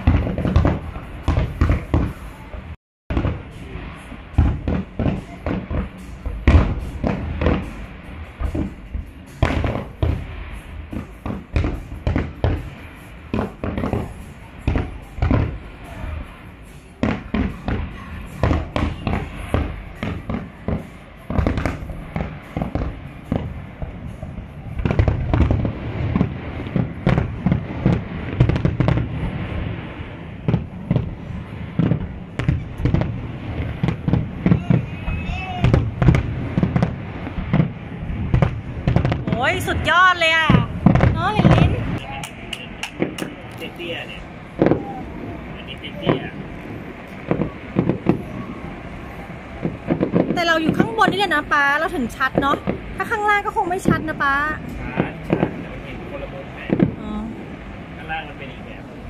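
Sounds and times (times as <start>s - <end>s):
fireworks bursting: 0.0s - 59.0s.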